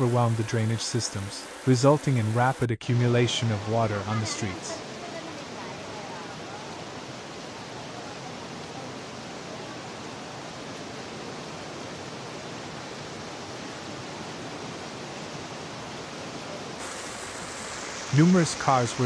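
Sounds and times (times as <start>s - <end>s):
torrential rain on a street: 0.0s - 19.0s.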